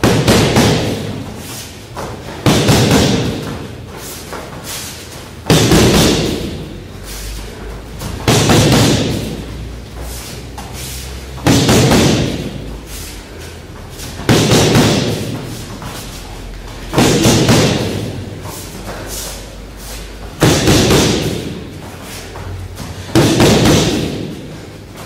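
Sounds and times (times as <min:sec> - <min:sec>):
gloved punches hitting pads: 0:00.0 - 0:01.2, 0:02.0 - 0:03.7, 0:05.4 - 0:06.6, 0:08.0 - 0:09.4, 0:11.4 - 0:12.6, 0:14.2 - 0:15.4, 0:16.9 - 0:18.2, 0:20.4 - 0:21.6, 0:23.1 - 0:24.4.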